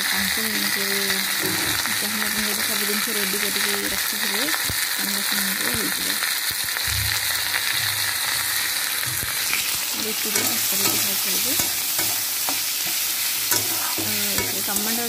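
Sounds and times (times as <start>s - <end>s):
vegetables sizzling in oil: 0.0s - 15.0s
metal spatula clicking on pan: 10.3s - 12.6s, 13.5s - 15.0s.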